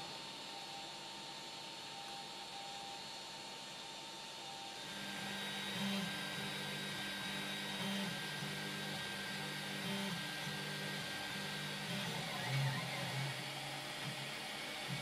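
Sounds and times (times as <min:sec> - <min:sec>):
cooling fans whirring: 0:00.0 - 0:15.0
stepper motors whining: 0:04.8 - 0:14.2.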